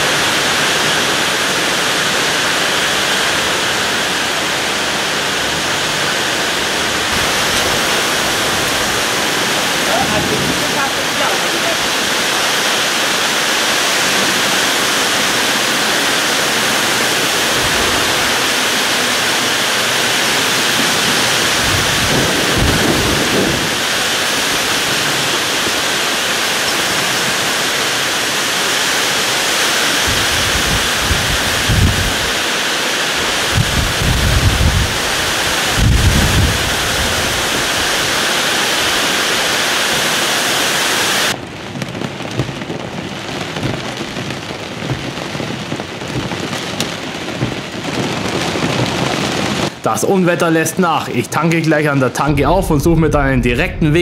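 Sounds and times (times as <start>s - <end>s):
heavy rain rushing: 0.0s - 54.0s
deep low rumbles: 52.2s - 54.0s.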